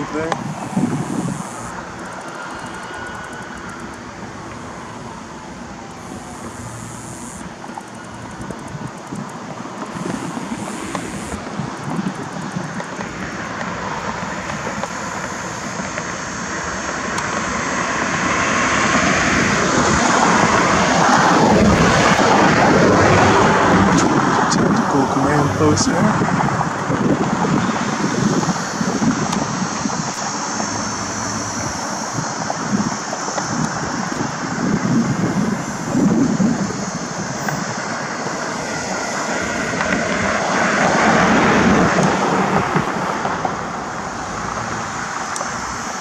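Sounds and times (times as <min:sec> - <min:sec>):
vehicle passing close by: 0:00.0 - 0:46.0.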